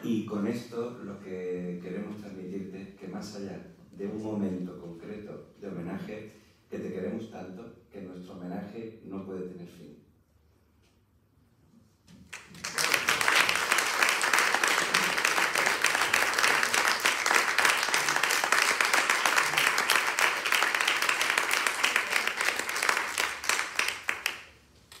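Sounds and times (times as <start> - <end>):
audience applauding: 12.3 - 25.0.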